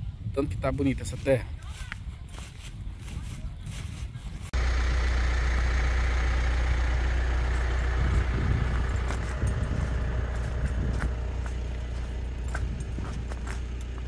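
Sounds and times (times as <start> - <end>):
road noise: 1.2 - 14.0
vehicle engine drone: 4.5 - 14.0.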